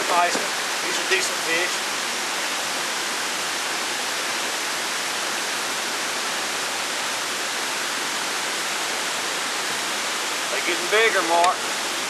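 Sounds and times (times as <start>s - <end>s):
steady rushing hiss: 0.0s - 12.0s.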